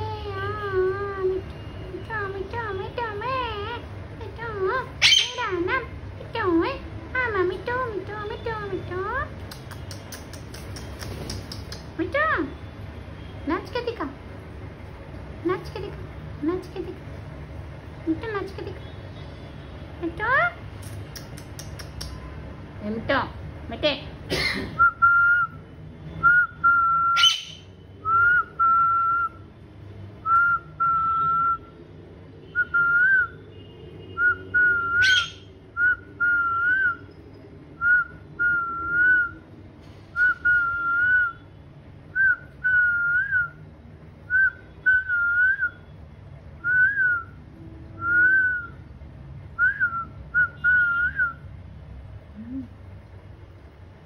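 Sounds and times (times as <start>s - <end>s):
sharp clicks: 9.4s - 11.9s.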